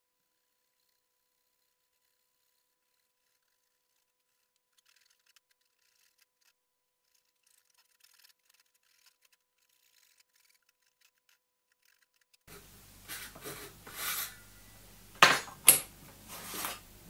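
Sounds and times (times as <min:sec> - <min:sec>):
knife scoring wood: 0:00.2 - 0:16.8
knocks on workbench: 0:15.2 - 0:15.9.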